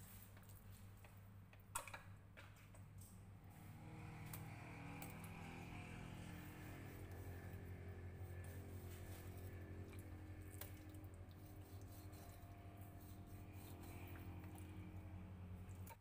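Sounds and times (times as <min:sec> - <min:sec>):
steady low hum: 0:02.7 - 0:16.0
knife cutting fish: 0:08.4 - 0:15.0.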